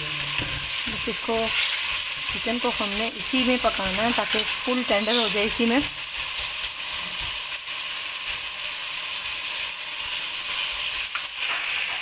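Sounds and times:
food sizzling in a pot: 0:00.0 - 0:12.0
spatula scraping a pot: 0:01.4 - 0:02.0.

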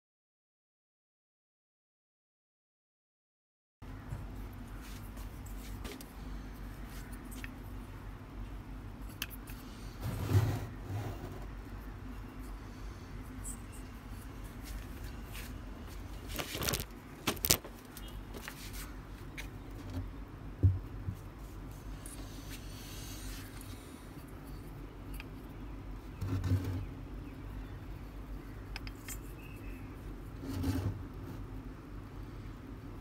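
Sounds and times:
steady low hum: 0:03.8 - 0:33.0
wires and plastic clicking: 0:05.5 - 0:07.8, 0:09.0 - 0:09.7, 0:13.4 - 0:20.2, 0:23.3 - 0:26.9, 0:28.3 - 0:29.8.

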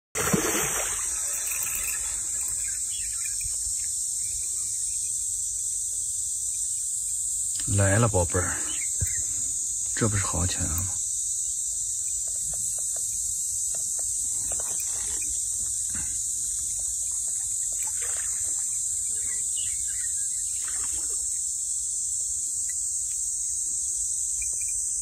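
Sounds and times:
high-pitched insect drone: 0:00.2 - 0:25.0.

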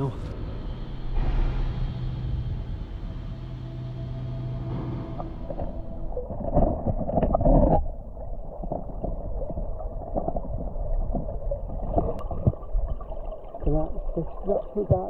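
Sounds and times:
water rushing: 0:00.0 - 0:15.0
muffled underwater stream burbling: 0:05.2 - 0:15.0.

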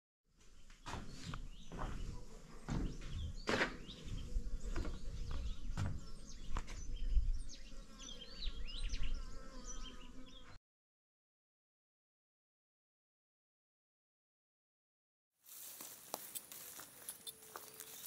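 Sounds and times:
wind buffeting microphone: 0:02.8 - 0:07.6.

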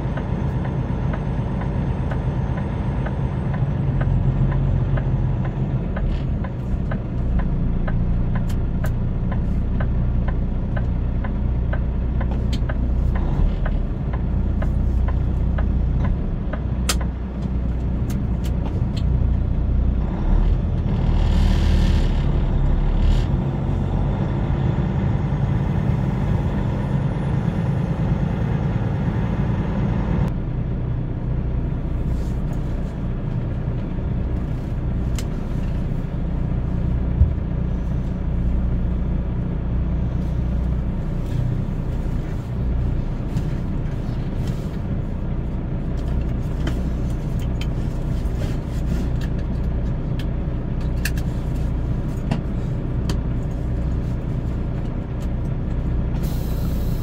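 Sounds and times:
truck diesel engine rumbling: 0:00.0 - 0:57.0
air brake hiss: 0:56.2 - 0:57.0.

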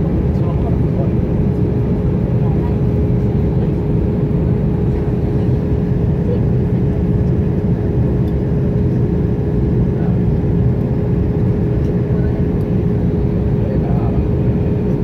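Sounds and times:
engine and airflow rush: 0:00.0 - 0:15.0.

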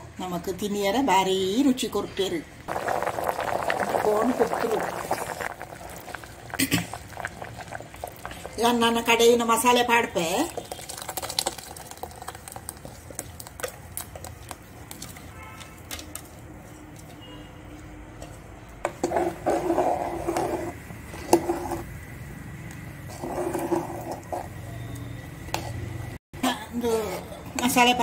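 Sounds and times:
ladle stirring liquid: 0:02.7 - 0:09.3, 0:10.2 - 0:17.2, 0:18.2 - 0:21.9, 0:23.0 - 0:24.7
curry bubbling in pot: 0:02.7 - 0:17.1, 0:18.6 - 0:26.2.

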